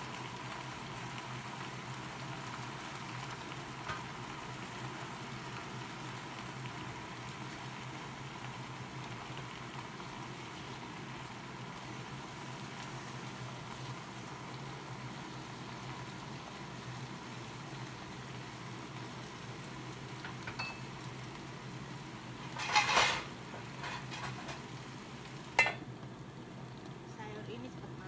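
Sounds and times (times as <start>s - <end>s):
low kitchen background noise: 0.0s - 28.0s
metal cookware clattering: 22.5s - 24.6s, 25.6s - 25.8s.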